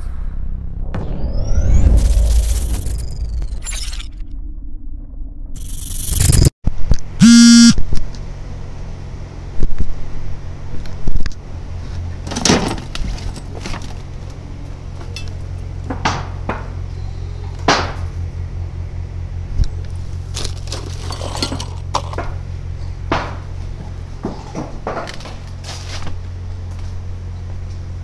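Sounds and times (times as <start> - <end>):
hard objects clinking and knocking: 20.4 - 22.3.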